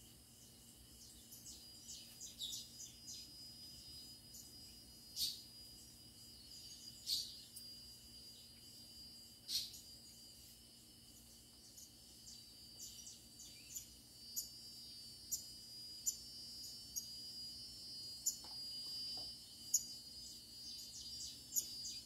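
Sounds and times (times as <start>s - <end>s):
birds chirping: 0.0s - 5.4s
high-pitched insect drone: 0.0s - 22.0s.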